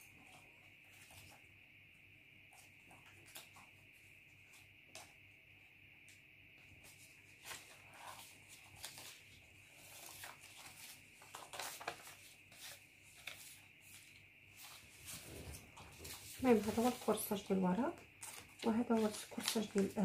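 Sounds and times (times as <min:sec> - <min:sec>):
paper rustling and tapping: 0:06.9 - 0:17.4, 0:18.2 - 0:20.0.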